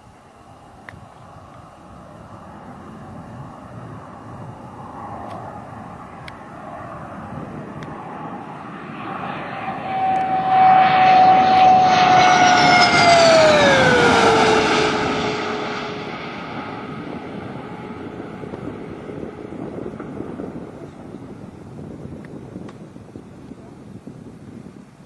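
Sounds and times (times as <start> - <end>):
jet engine whining: 0.0 - 24.6.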